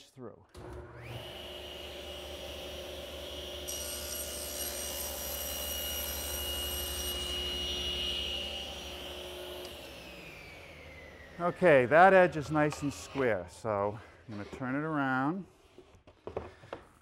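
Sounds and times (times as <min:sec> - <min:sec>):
saw blade whine in cut: 0:00.6 - 0:13.6
table saw running: 0:00.6 - 0:13.6.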